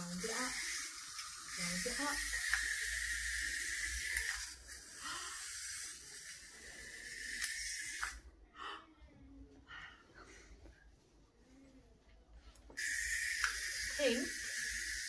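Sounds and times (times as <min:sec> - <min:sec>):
wind-up toys whirring: 0:00.0 - 0:08.3, 0:12.8 - 0:15.0.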